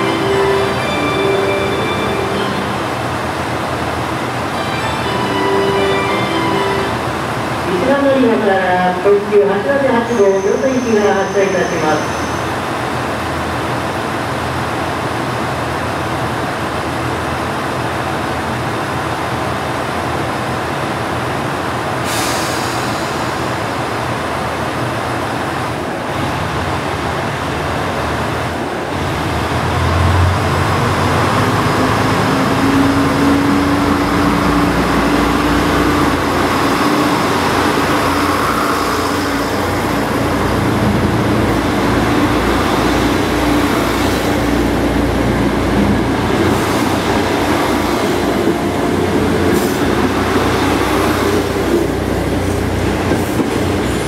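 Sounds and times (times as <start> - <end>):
diesel railcar engine: 0.0 - 54.0
air hiss: 22.0 - 23.6.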